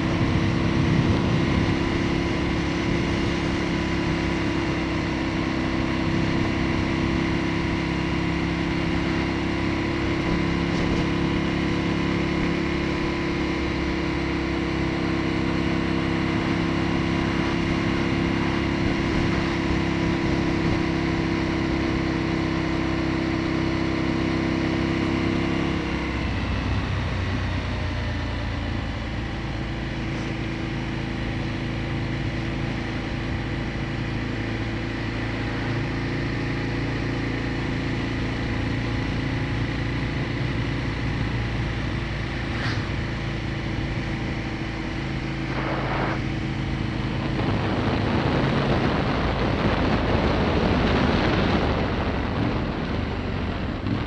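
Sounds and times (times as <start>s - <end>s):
wind noise: 0.0s - 4.6s, 40.2s - 54.0s
motorcycle engine cruising: 0.0s - 54.0s.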